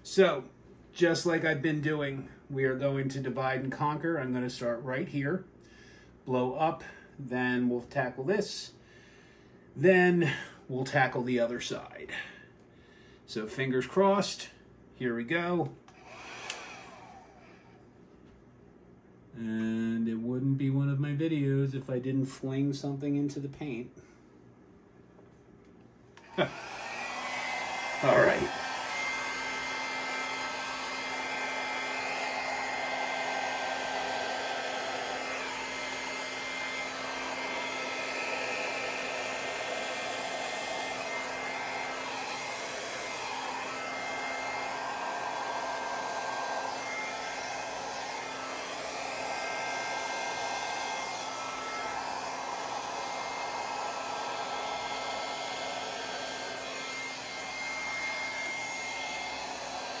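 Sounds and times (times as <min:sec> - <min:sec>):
hair dryer running: 0:15.9 - 0:17.8, 0:26.2 - 1:00.0.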